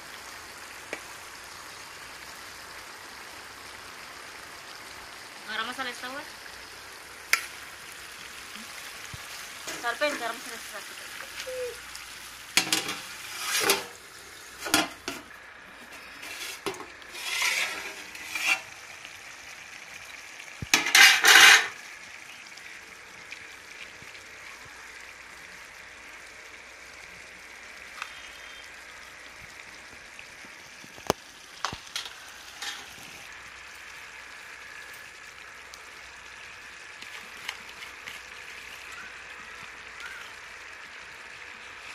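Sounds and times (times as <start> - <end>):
simmering hiss: 0.0 - 41.9
ladle scraping metal pot: 12.6 - 14.0, 14.6 - 18.8, 20.8 - 21.8, 31.6 - 33.1.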